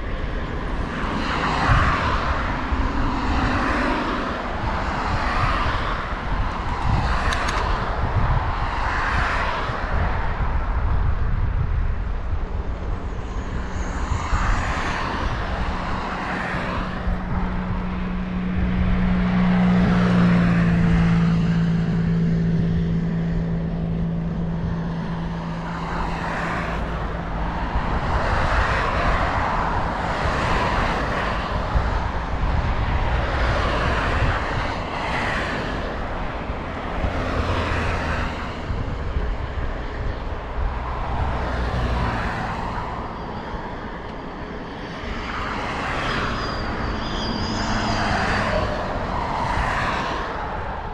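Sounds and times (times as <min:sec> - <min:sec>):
road traffic passing: 0:00.0 - 0:50.9
wind rumble on microphone: 0:00.0 - 0:50.9
engine drone: 0:10.6 - 0:50.9.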